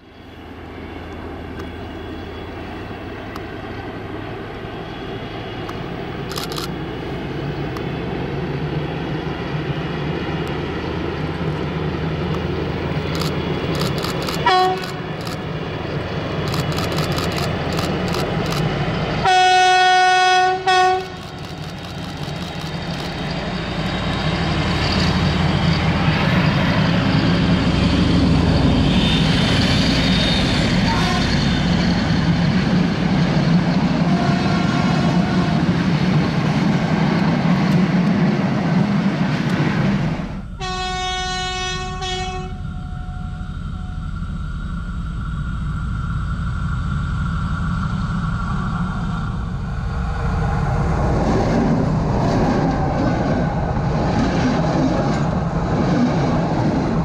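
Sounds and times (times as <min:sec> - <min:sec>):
diesel locomotive engine drone: 0:00.0 - 0:57.0
train wheels rolling: 0:00.3 - 0:19.5, 0:20.7 - 0:57.0
locomotive horn: 0:14.4 - 0:15.1, 0:19.2 - 0:21.4, 0:30.8 - 0:31.7, 0:34.0 - 0:35.9, 0:40.5 - 0:44.1.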